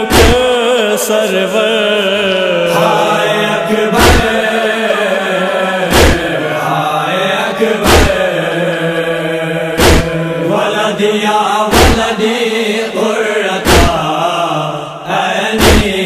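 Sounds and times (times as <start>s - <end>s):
deep rhythmic thuds: 0.0s - 0.6s, 3.9s - 4.4s, 5.9s - 6.4s, 7.8s - 8.3s, 9.7s - 10.2s, 11.7s - 12.2s, 13.6s - 14.2s, 15.6s - 16.0s
voices chanting a wavering note: 0.0s - 16.0s.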